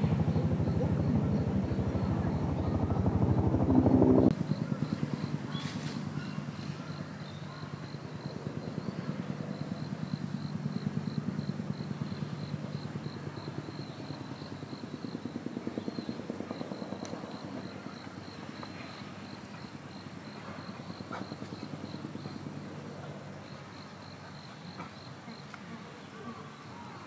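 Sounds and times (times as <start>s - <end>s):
pulsing mechanical drone: 0.0s - 17.3s.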